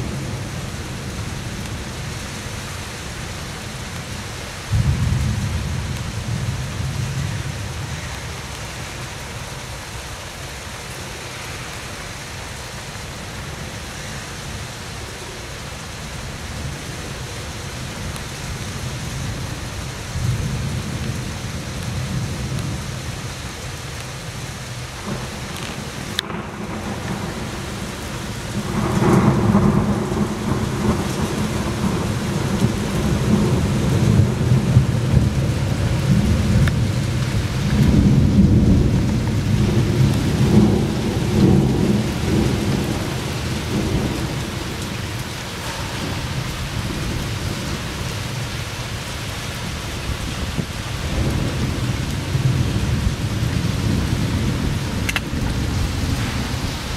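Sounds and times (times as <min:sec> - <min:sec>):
rain hissing: 0:00.0 - 0:56.9
thunder rolling: 0:25.0 - 0:48.1, 0:50.1 - 0:56.9.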